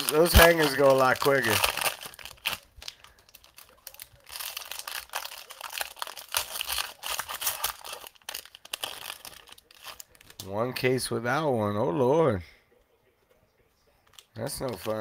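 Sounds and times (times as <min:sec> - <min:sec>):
plastic wrappers crinkling and tearing: 0:00.0 - 0:10.5, 0:14.0 - 0:15.0.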